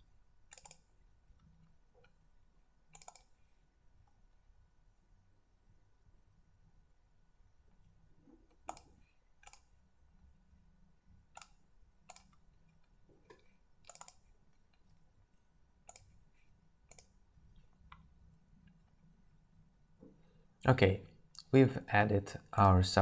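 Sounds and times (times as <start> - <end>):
faint computer mouse clicks: 0.5 - 0.9, 2.9 - 3.4, 8.5 - 9.7, 11.4 - 12.4, 13.3 - 14.8, 15.9 - 16.2, 16.9 - 17.1.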